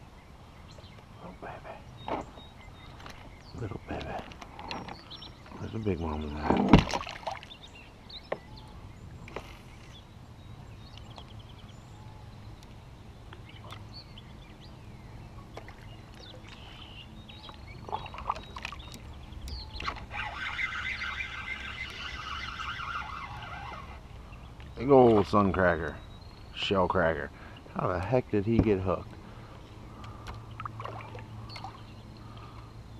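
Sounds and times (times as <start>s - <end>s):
bird chirps: 7.3s - 32.9s
steady low rumble: 7.6s - 32.9s.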